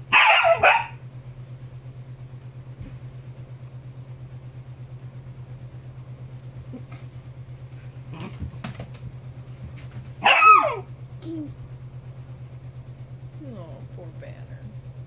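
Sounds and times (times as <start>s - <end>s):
low pulsing mechanical hum: 0.0s - 15.0s
dog barking: 0.1s - 1.0s, 10.2s - 10.9s.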